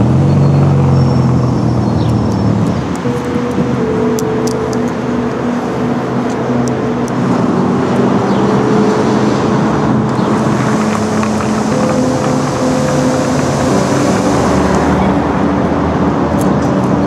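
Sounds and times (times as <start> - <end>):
cars and trucks passing: 0.0 - 17.0
held low tones: 0.0 - 17.0
road traffic rushing hum: 0.0 - 17.0.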